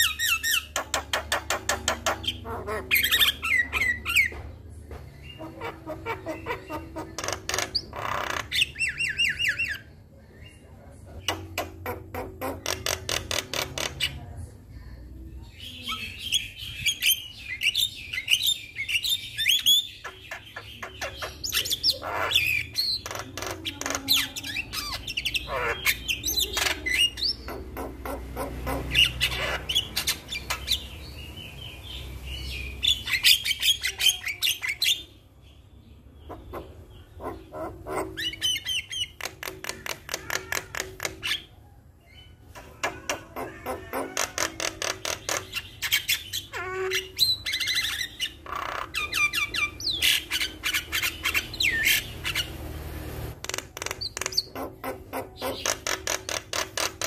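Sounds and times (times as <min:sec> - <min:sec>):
myna bird rattling clicks and chirps: 0:53.4 - 0:54.6.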